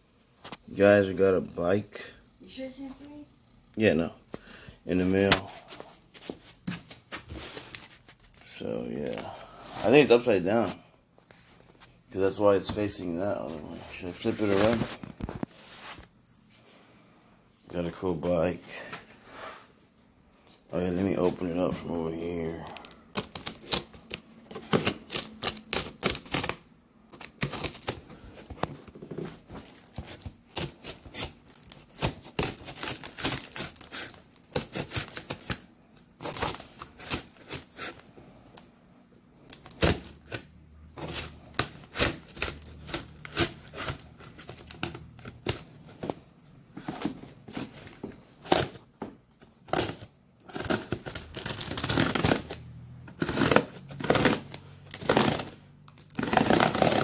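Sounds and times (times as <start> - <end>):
scissors cutting packing tape: 22.8 - 28.0, 29.7 - 35.6, 36.2 - 38.0, 41.0 - 45.7, 49.7 - 52.6, 53.2 - 57.0
tape tearing: 22.8 - 28.4, 29.2 - 35.6, 36.2 - 38.0, 41.0 - 45.7, 49.7 - 57.0
cardboard crackling: 53.2 - 57.0.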